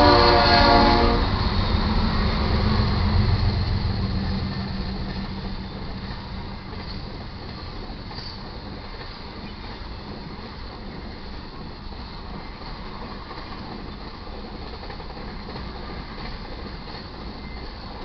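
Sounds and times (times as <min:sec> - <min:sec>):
train wheels clattering on rails: 0:00.0 - 0:18.0.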